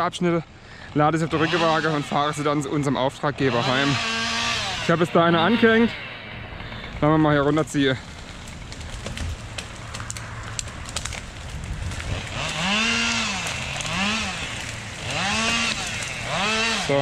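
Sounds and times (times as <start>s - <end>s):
chainsaw revving: 0.9s - 17.0s
tree cracking through brush: 6.9s - 17.0s.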